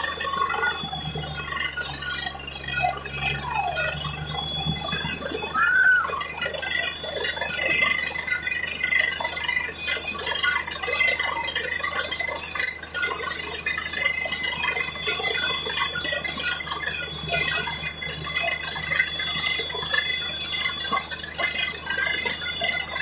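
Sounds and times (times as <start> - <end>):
drilling rig running: 0.0 - 23.0
high whine: 0.0 - 23.0.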